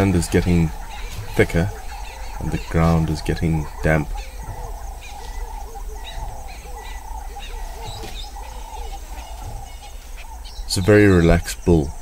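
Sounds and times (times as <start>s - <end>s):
high chirps: 0.0s - 12.0s
pulsing chorus of small creatures: 0.0s - 12.0s.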